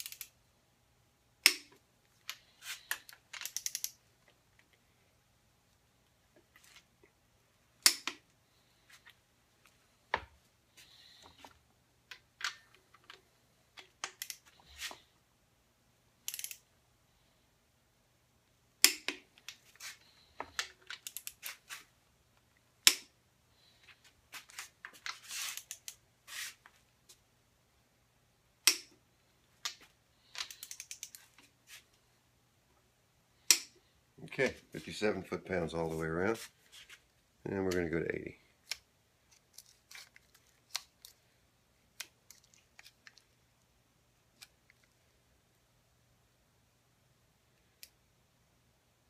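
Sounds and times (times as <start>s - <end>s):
ratchet clicking and rattling: 0.0s - 0.3s, 3.4s - 3.9s, 16.3s - 16.6s.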